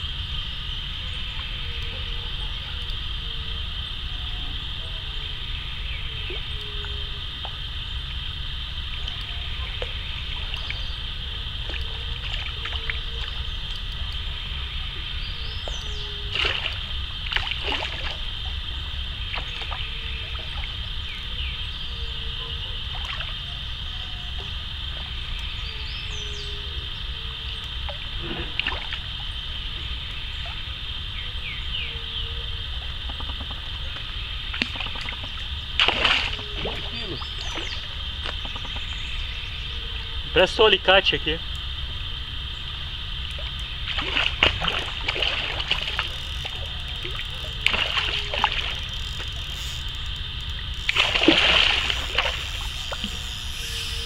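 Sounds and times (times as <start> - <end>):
steady high hiss: 0.0 - 54.0
fish splashing at water surface: 16.3 - 18.6, 34.5 - 38.6, 43.3 - 49.9, 50.5 - 53.5.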